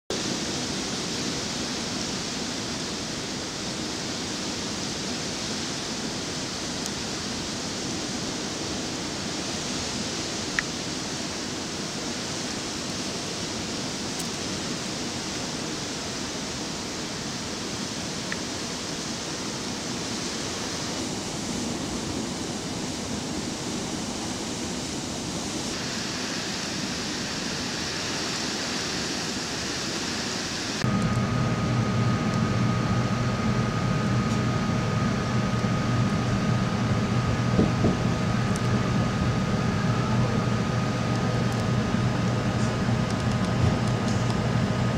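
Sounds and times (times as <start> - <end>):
blizzard wind blowing: 0.1 - 44.9
machine hum with held tones: 13.1 - 44.9.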